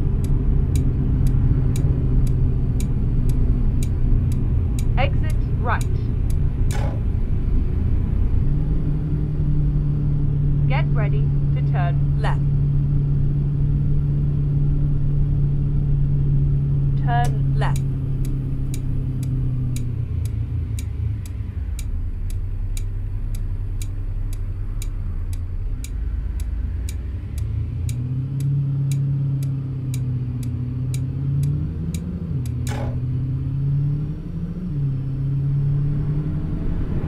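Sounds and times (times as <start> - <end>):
turn signal clicking: 0.0 - 7.4, 17.0 - 35.8
car engine and road rumble: 0.0 - 37.0.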